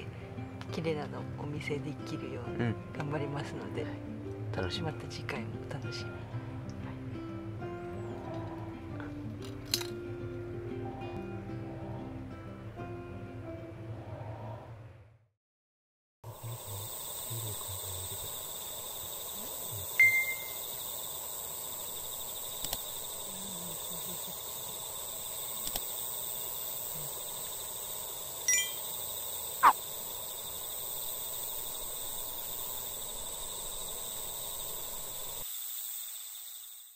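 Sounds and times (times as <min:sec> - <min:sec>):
insects trilling: 0:05.8 - 0:09.6, 0:16.3 - 0:36.9.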